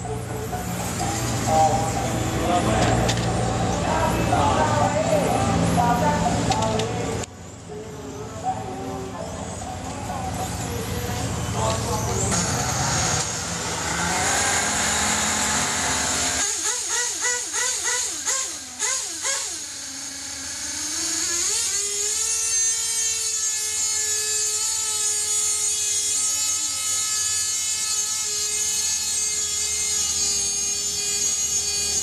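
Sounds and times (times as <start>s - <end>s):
small motors whining: 0.0s - 32.0s.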